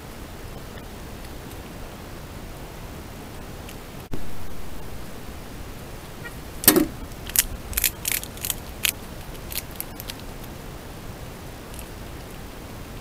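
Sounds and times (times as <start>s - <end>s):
sharp clicks and clatters: 6.6s - 10.5s.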